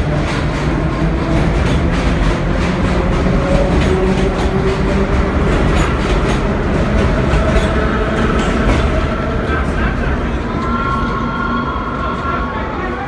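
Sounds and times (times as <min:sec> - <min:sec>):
wheels clacking over rail joints: 0:00.0 - 0:09.4
subway train rumbling past: 0:00.0 - 0:13.0.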